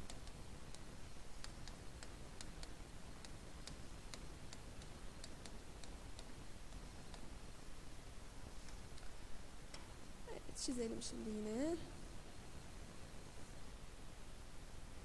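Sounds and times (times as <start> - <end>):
stylus tapping on tablet: 0.0 - 7.3.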